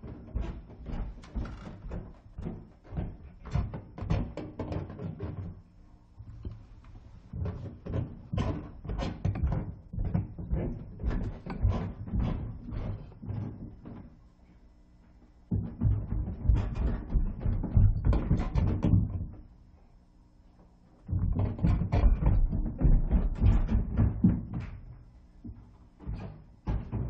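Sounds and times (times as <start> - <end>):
footsteps on outdoor stairs: 0.0 - 5.6.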